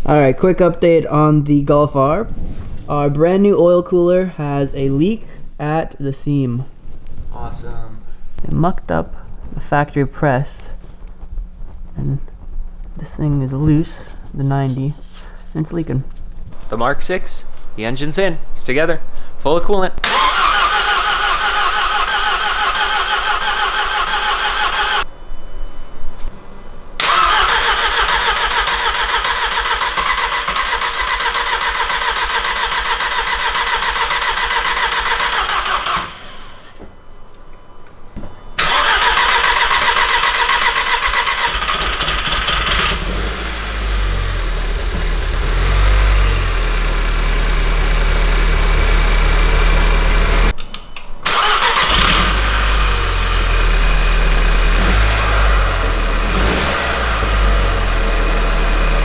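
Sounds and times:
starter motor cranking: 20.0s - 25.0s, 27.0s - 36.8s, 38.6s - 46.5s, 51.3s - 52.9s
car engine running: 42.6s - 50.5s.

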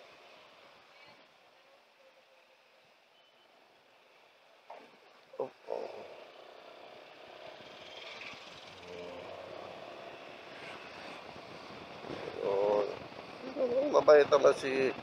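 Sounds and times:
road noise: 0.0s - 15.0s
motorcycle engine: 4.7s - 15.0s.

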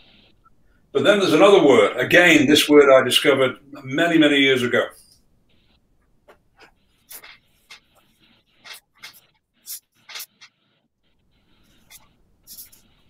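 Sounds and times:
marker pen scratching on paper: 5.0s - 13.0s.

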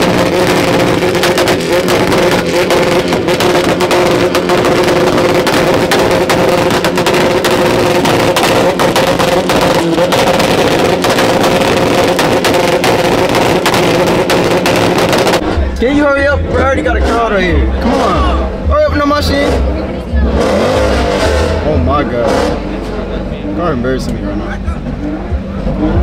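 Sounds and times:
exhaust pops crackling: 0.0s - 23.2s
car engines running: 0.0s - 26.0s
music: 25.0s - 26.0s.

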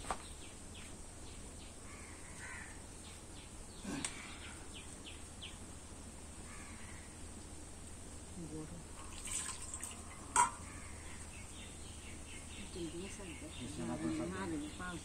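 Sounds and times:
faint bird chirps: 9.7s - 15.0s.

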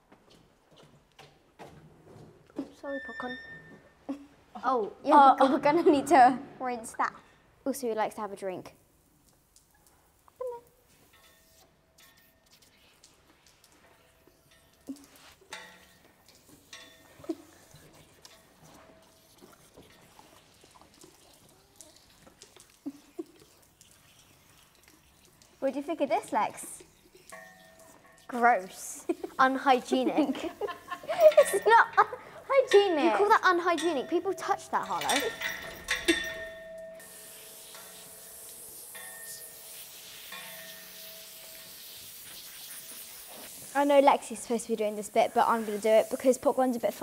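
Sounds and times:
water dripping and splashing: 7.2s - 47.0s
pony slurping water: 9.0s - 36.4s, 37.0s - 47.0s.

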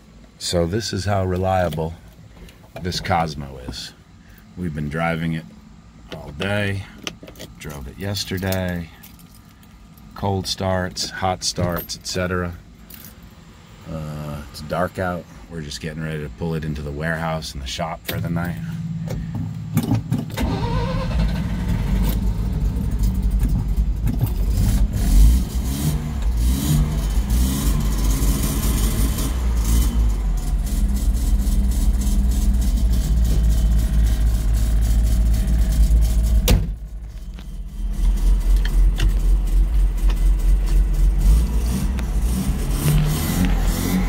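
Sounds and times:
rotary engine revving and idling: 18.1s - 44.0s.

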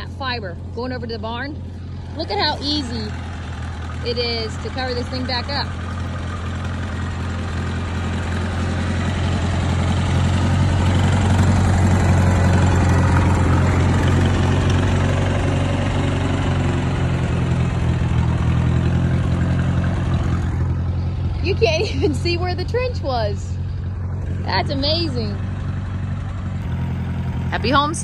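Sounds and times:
tractor engine running: 0.0s - 28.0s.

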